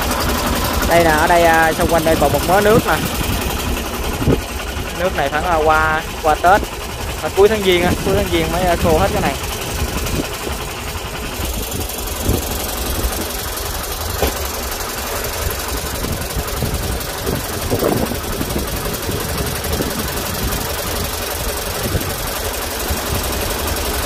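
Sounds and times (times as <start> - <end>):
tractor engine idling: 0.0 - 24.0
brief thumps: 14.2 - 14.5.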